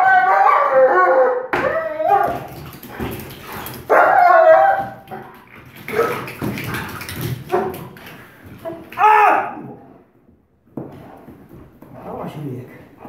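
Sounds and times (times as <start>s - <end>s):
dog barking and yipping: 0.0s - 5.3s.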